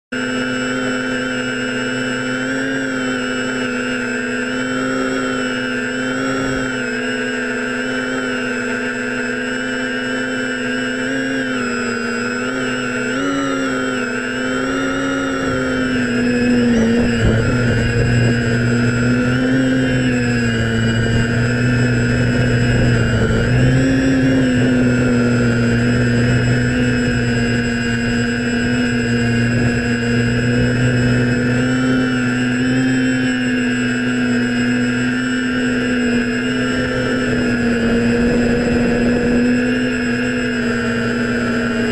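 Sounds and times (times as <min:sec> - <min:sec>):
drone propellers buzzing: 0:00.1 - 0:41.9.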